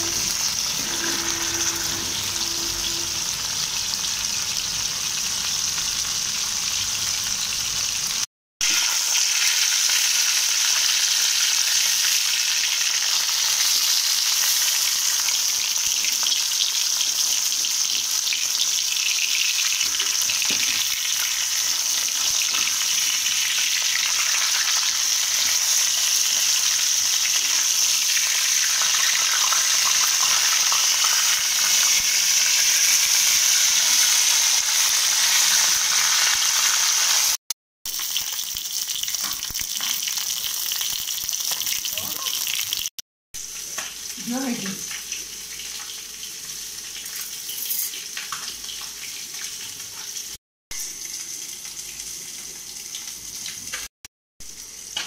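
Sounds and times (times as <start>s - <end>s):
spatula scraping a pan: 0.0s - 3.4s
fish sizzling in hot oil: 0.0s - 55.0s.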